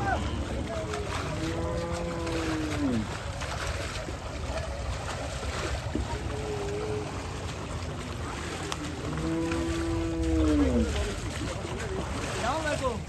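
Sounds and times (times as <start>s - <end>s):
water sloshing and splashing: 0.0s - 13.0s.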